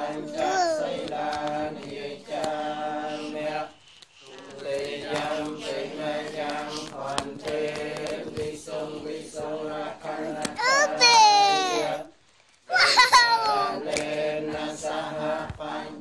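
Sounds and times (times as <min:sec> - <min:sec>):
voices chanting: 0:00.0 - 0:16.0.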